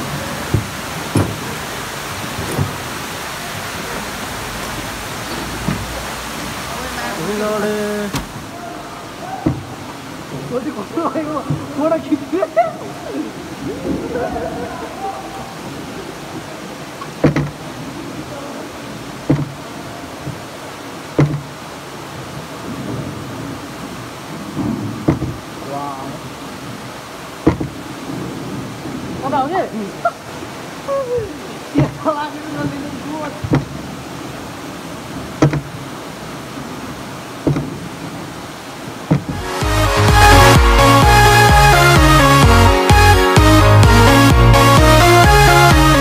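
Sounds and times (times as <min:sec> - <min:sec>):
short knocks: 0:00.0 - 0:01.6, 0:02.3 - 0:03.0, 0:09.3 - 0:10.5, 0:11.3 - 0:11.9, 0:17.0 - 0:17.7, 0:19.2 - 0:20.5, 0:21.1 - 0:21.6, 0:24.6 - 0:25.5, 0:27.4 - 0:27.9, 0:31.8 - 0:32.0, 0:33.4 - 0:33.9, 0:35.3 - 0:35.8, 0:37.4 - 0:37.9, 0:39.0 - 0:40.7
waterfall rushing: 0:00.0 - 0:46.0.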